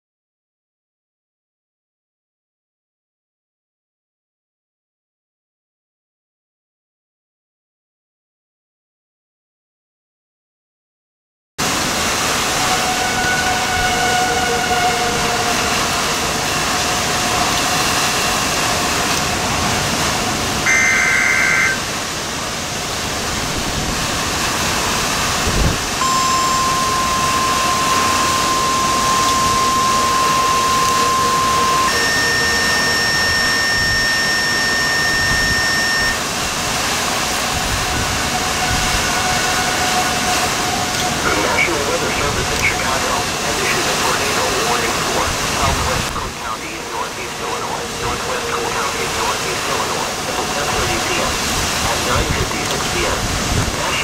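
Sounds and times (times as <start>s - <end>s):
rushing storm wind: 11.6s - 54.0s
higher steady tone: 12.0s - 22.4s, 24.8s - 52.3s
electronic buzzing burst: 20.6s - 21.9s, 26.0s - 36.4s
steady electronic beep: 20.6s - 21.9s, 26.0s - 36.2s.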